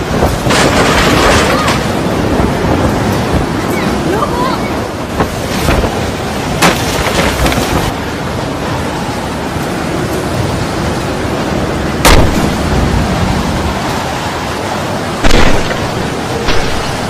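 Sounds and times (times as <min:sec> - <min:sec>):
wind and rain rushing: 0:00.0 - 0:17.0
wind buffeting microphone: 0:00.0 - 0:17.0
loud sudden bangs: 0:12.0 - 0:12.6, 0:15.2 - 0:17.0.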